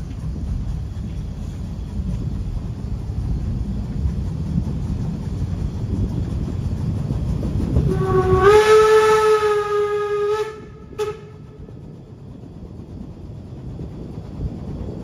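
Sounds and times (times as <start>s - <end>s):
train rumbling on track: 0.0s - 15.0s
steam whistle blast: 7.9s - 11.5s.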